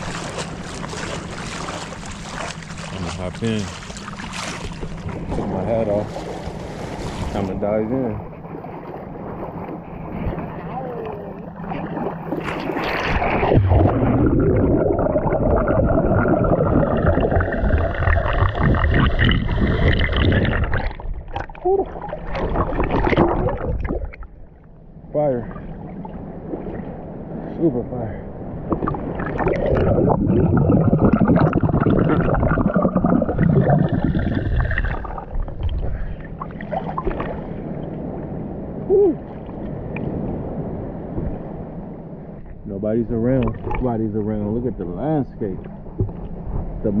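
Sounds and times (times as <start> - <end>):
muffled underwater swimming: 8.2 - 24.8, 25.4 - 42.6, 43.2 - 47.0
underwater bubbles: 8.2 - 24.8, 28.5 - 38.3, 43.3 - 44.3, 45.5 - 46.9.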